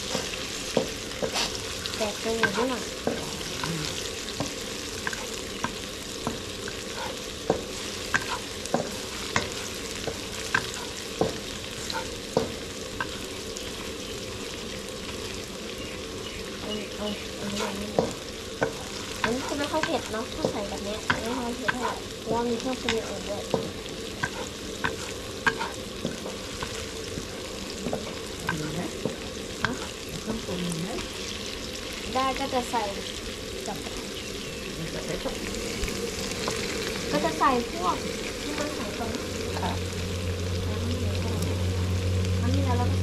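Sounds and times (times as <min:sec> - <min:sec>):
spatula scraping and clatter: 0:00.0 - 0:03.7, 0:04.3 - 0:13.9, 0:22.9 - 0:30.2
food sizzling in pan: 0:00.0 - 0:43.0
spatula knocking against pan: 0:07.0 - 0:13.2.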